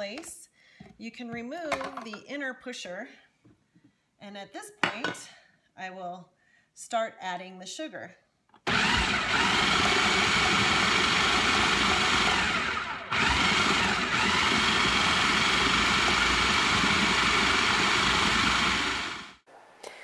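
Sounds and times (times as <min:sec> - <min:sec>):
food processor chopping: 0:08.7 - 0:19.4.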